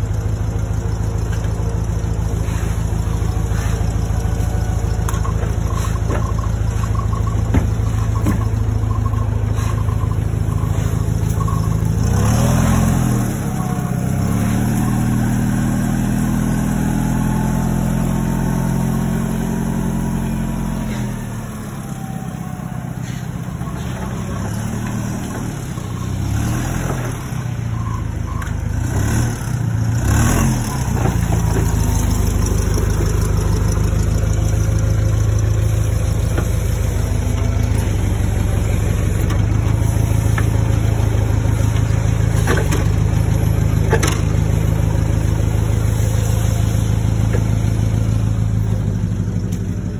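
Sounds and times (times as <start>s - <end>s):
forklift engine running: 0.0s - 49.9s.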